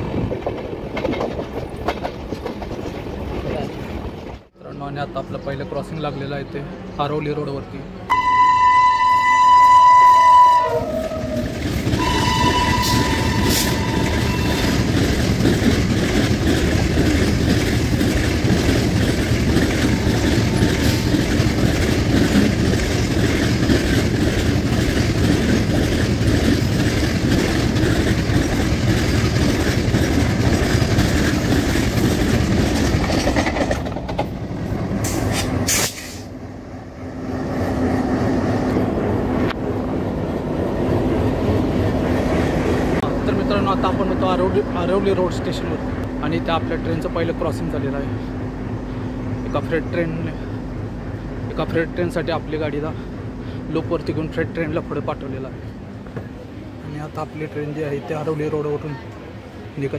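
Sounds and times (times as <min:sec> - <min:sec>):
freight wagons clattering on rails: 0:00.0 - 0:04.4, 0:11.2 - 0:36.0
locomotive horn blasts: 0:08.1 - 0:11.4, 0:12.0 - 0:14.7.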